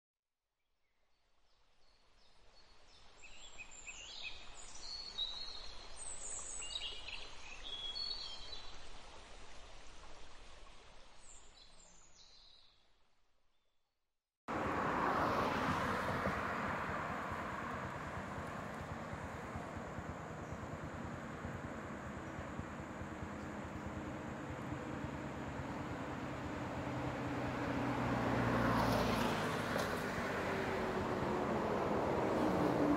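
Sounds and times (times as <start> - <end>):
road traffic rush: 14.5 - 32.9.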